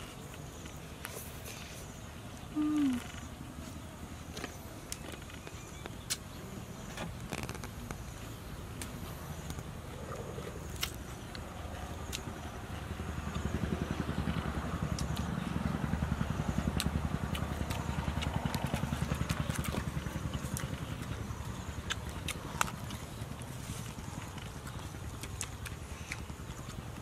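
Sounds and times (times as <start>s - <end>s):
vehicle engine running: 0.0s - 27.0s.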